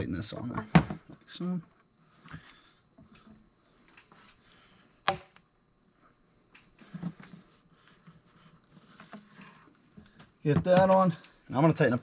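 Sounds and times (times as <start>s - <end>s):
small knocks and rustles: 6.5s - 11.3s.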